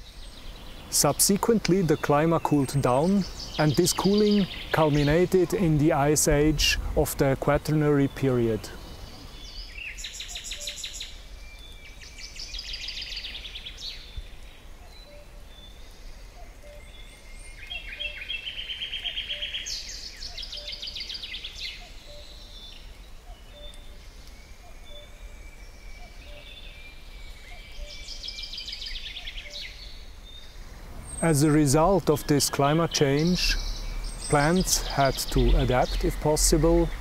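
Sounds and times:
birds trilling song: 0.0s - 37.0s
short bird calls: 14.8s - 37.0s.

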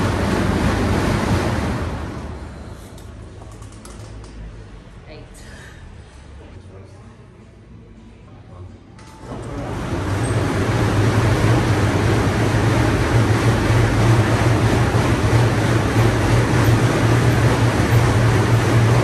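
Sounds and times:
air bike fans whirring: 0.0s - 19.0s.

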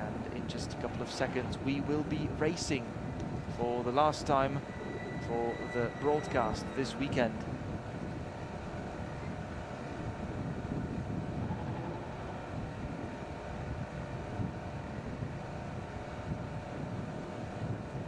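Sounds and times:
race car engines running: 0.0s - 18.0s.

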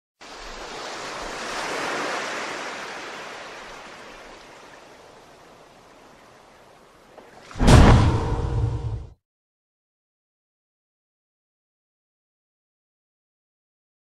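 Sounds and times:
ocean surf washing up beach: 0.2s - 7.8s.

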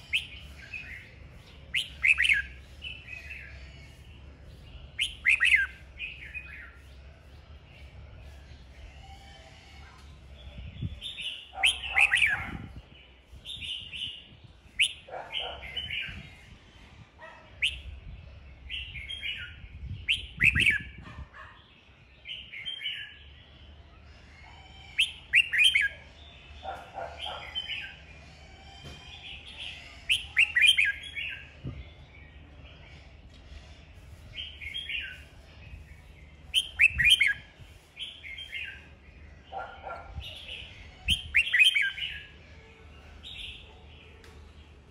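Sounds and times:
bird singing warbled phrases: 0.0s - 28.4s, 29.1s - 44.9s.

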